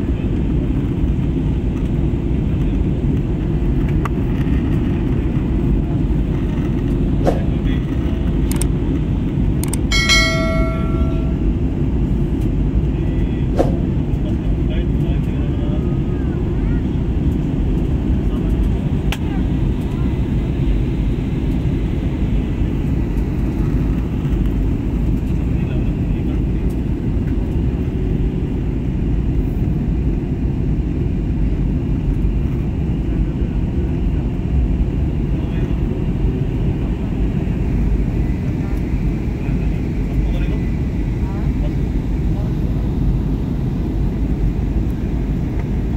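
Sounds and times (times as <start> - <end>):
airliner cabin roar: 0.0 - 45.9
cabin chime: 9.9 - 11.5.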